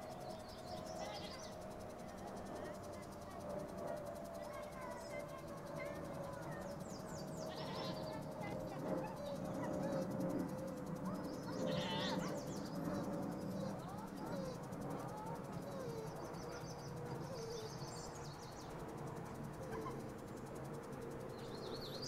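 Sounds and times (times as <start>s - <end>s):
faint livestock bleating: 7.4s - 8.1s, 11.6s - 12.3s.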